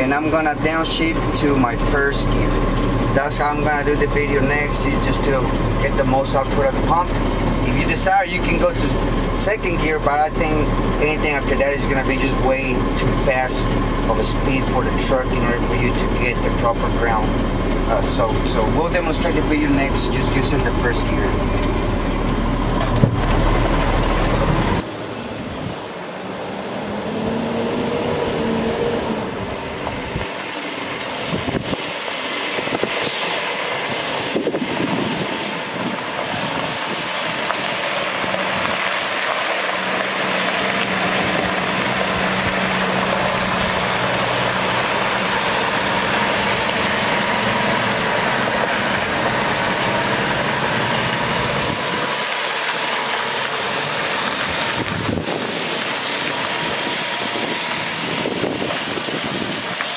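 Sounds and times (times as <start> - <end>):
diesel engine deep rumble: 0.0 - 59.9
water spraying hiss: 49.4 - 59.9.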